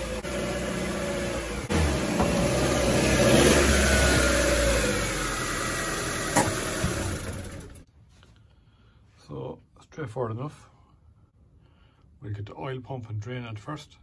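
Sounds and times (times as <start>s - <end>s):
car engine revving: 0.0s - 7.8s.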